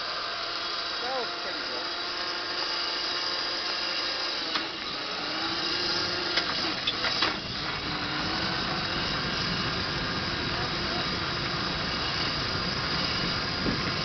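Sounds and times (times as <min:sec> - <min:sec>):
drivetrain whir: 0:00.0 - 0:14.0
faint electric motor tone: 0:00.0 - 0:14.0
sharp clicks and rattles: 0:06.1 - 0:08.0.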